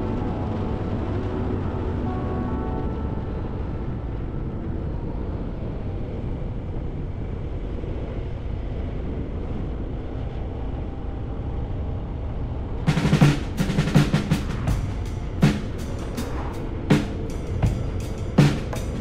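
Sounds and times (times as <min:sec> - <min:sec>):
wind rushing: 0:00.0 - 0:19.0.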